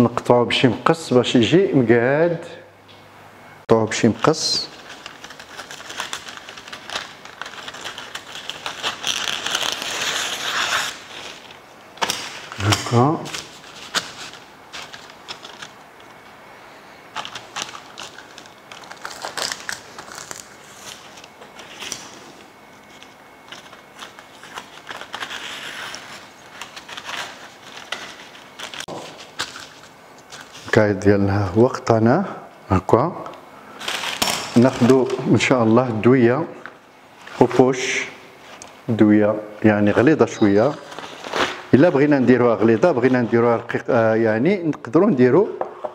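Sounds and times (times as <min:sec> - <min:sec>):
paper crinkling: 0:03.9 - 0:30.8, 0:33.7 - 0:36.0, 0:39.8 - 0:44.1.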